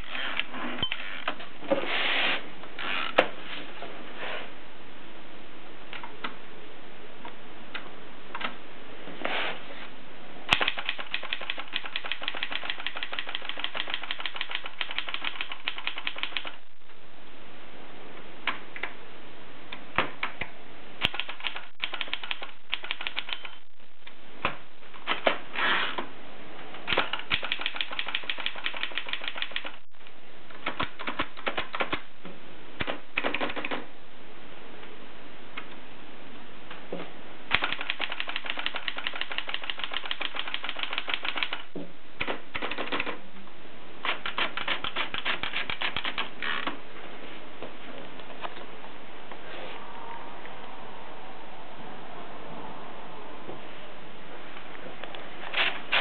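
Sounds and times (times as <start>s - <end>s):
typewriter keys striking: 10.5s - 16.6s, 26.9s - 29.8s, 44.1s - 46.3s.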